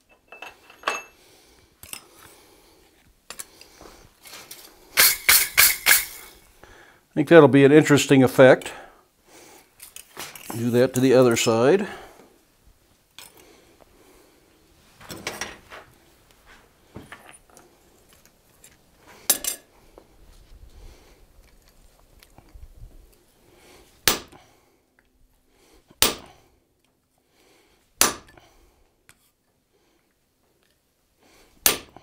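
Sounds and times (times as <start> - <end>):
soft knocks and clinks: 0.0 - 1.2, 17.0 - 19.7
hammer striking metal punch: 5.0 - 6.2, 24.0 - 24.3, 26.0 - 26.3, 28.0 - 28.4, 31.6 - 31.9.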